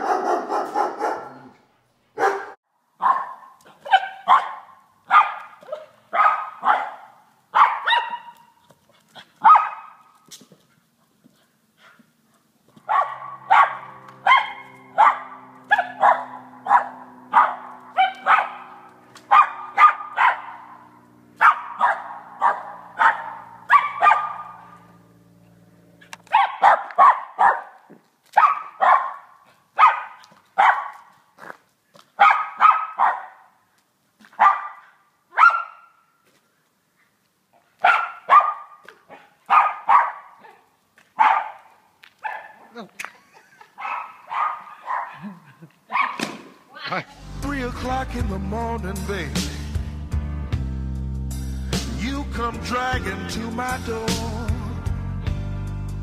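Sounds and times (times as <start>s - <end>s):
small dog barking: 0.0s - 1.6s, 2.2s - 8.6s, 9.4s - 10.1s, 12.8s - 20.8s, 21.4s - 24.9s, 26.3s - 31.1s, 32.2s - 33.5s, 34.2s - 36.0s, 37.8s - 42.8s, 43.8s - 45.2s, 45.9s - 46.2s.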